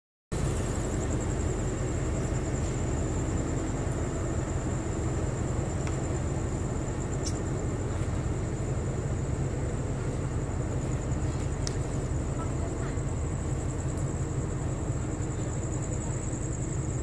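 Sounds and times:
diesel train engine rumble: 0.3s - 17.0s
faint ticks: 11.6s - 11.8s.

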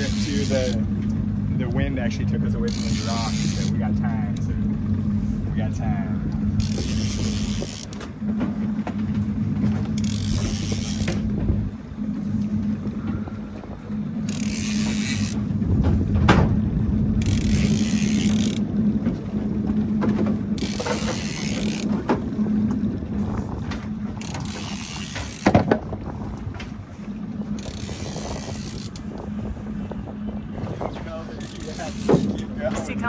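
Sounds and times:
fishing reel gears clicking: 0.0s - 0.8s, 2.6s - 3.8s, 6.6s - 8.0s, 10.0s - 11.2s, 14.2s - 15.4s, 17.2s - 18.7s, 20.6s - 21.9s, 24.2s - 25.5s, 27.6s - 29.1s, 31.4s - 32.5s
steady low hum: 0.0s - 33.0s.

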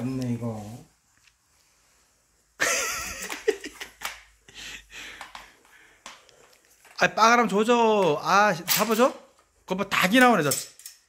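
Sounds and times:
person laughing: 2.6s - 5.0s.

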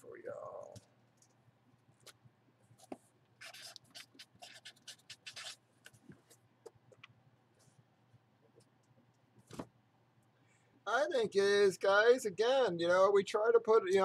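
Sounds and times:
marker scratching on cardboard: 2.8s - 5.6s.

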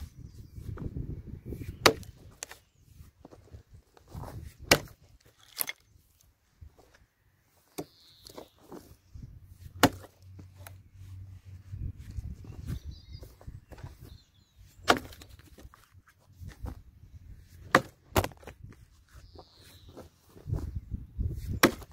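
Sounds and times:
axe chopping into log: 1.8s - 2.5s, 4.6s - 5.0s, 9.8s - 10.1s, 14.8s - 15.3s, 17.6s - 18.5s, 21.4s - 21.9s.

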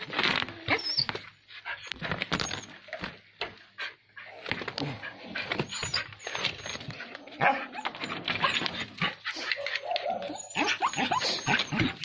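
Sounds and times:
dog barking and yelping: 3.9s - 12.0s.

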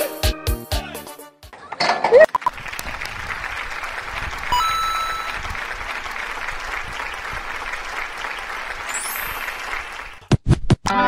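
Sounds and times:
short electronic tone: 4.6s - 5.4s.

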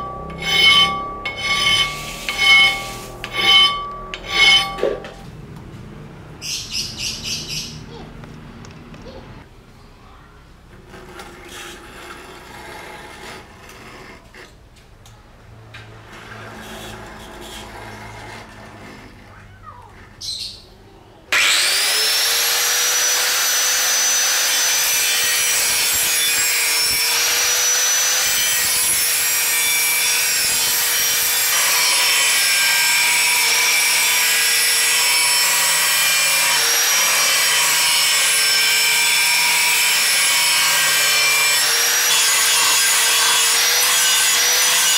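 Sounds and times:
angle grinder grinding steel: 0.0s - 5.2s, 21.3s - 44.9s.

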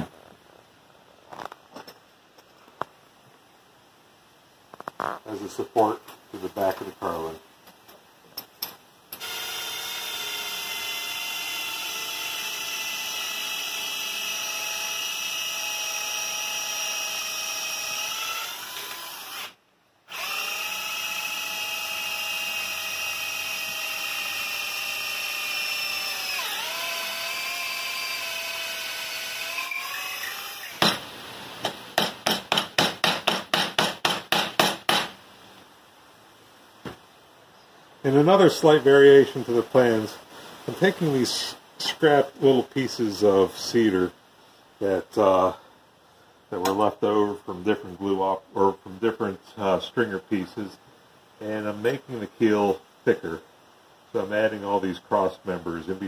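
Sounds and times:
cordless drill whining: 9.2s - 30.9s.

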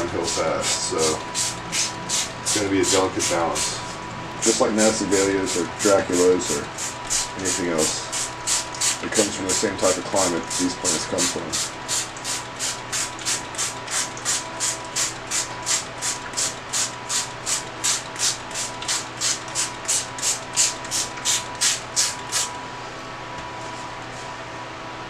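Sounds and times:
steady hum: 0.0s - 25.0s
spray bottle squirting: 8.1s - 9.0s.

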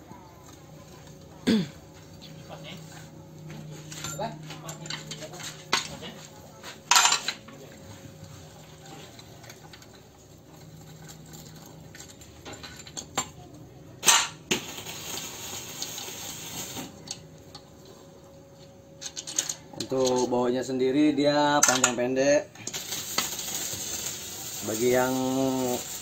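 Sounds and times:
steel tools clinking: 3.9s - 6.0s, 6.9s - 7.5s, 10.6s - 13.4s, 19.0s - 20.3s, 21.6s - 22.0s.

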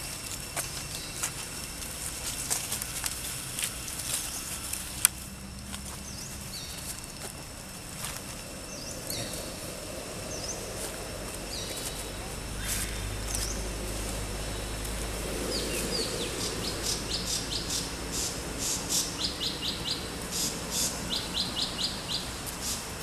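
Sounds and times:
dry leaves crackling: 0.0s - 23.0s.

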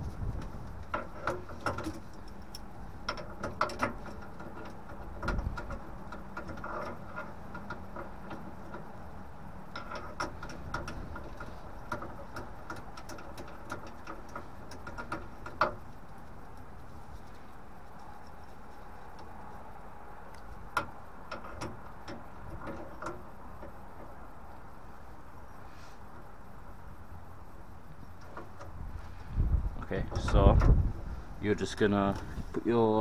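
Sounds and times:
steady low rumble: 0.0s - 33.0s
spanner clicking on metal: 0.7s - 9.0s, 9.7s - 16.5s.

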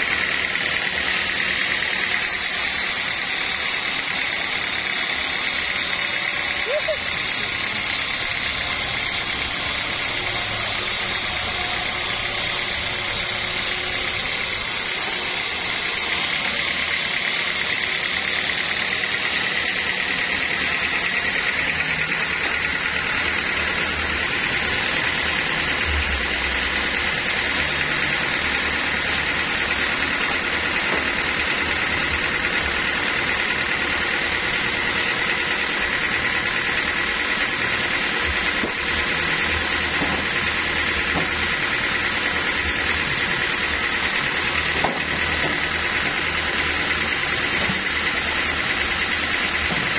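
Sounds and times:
band sawmill sawing wood: 0.0s - 49.9s
steady high tone: 3.7s - 30.0s.

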